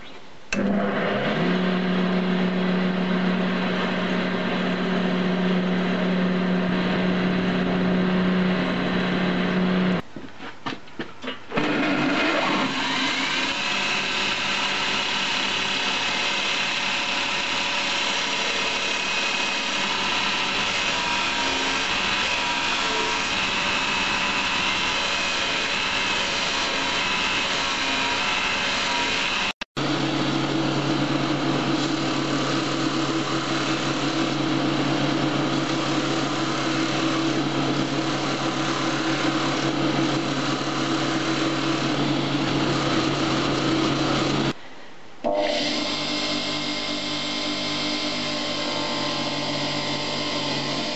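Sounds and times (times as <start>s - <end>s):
belt grinder grinding blade: 11.5s - 29.5s, 30.3s - 44.5s.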